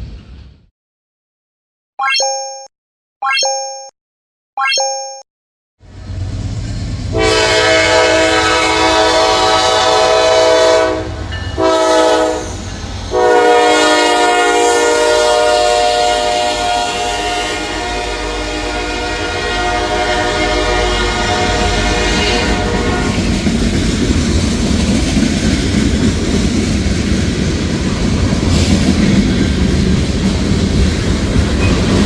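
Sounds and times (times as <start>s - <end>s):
locomotive horn blasts: 7.1s - 12.4s, 13.1s - 23.2s.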